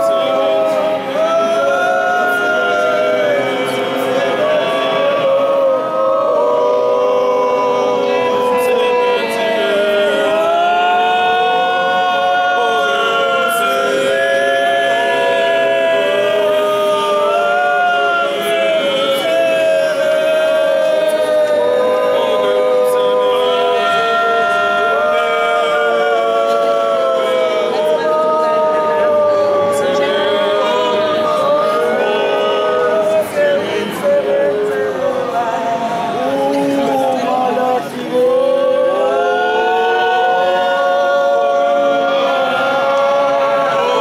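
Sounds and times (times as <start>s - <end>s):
choir singing unaccompanied: 0.0s - 44.0s.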